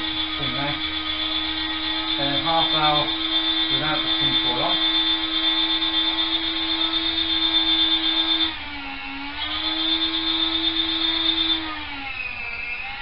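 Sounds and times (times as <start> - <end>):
meat slicer motor whining: 0.0 - 13.0.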